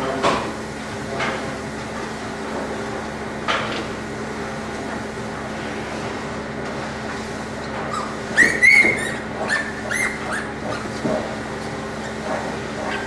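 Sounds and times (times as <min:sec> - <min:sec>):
steady background hum: 0:00.0 - 0:13.0
piglets squealing: 0:07.9 - 0:11.0.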